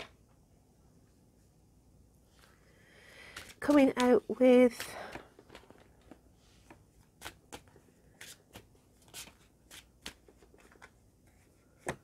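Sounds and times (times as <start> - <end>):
cards being shuffled: 3.2 - 11.0.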